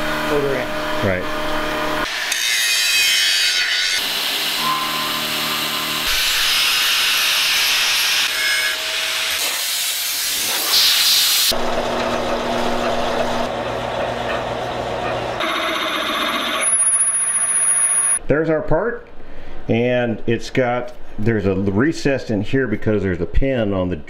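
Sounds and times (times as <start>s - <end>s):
band saw cutting metal: 0.0s - 18.2s
angle grinder cutting steel: 1.9s - 10.5s, 15.2s - 18.2s.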